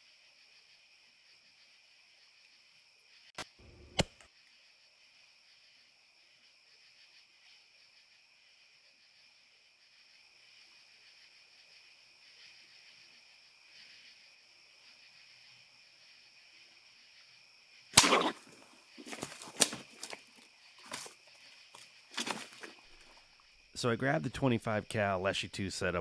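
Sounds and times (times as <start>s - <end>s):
crickets chirping: 0.0s - 26.0s
sudden loud crack: 18.0s - 18.5s.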